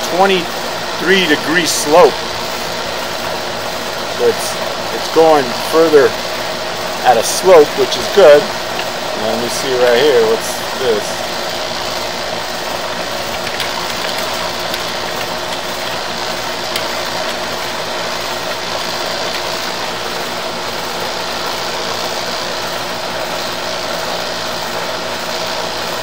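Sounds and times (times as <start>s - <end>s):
compressor unit humming: 0.0s - 26.0s.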